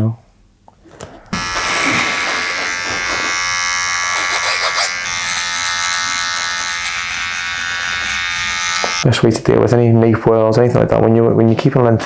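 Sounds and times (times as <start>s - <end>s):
hair trimmer buzzing: 1.3s - 9.0s.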